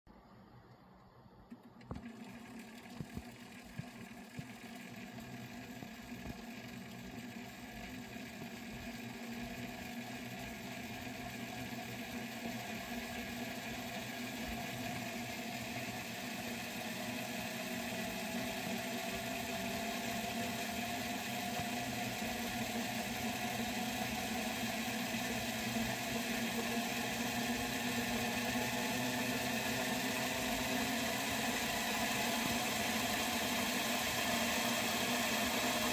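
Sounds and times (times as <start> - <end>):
small electric motors whirring: 1.8 - 35.9.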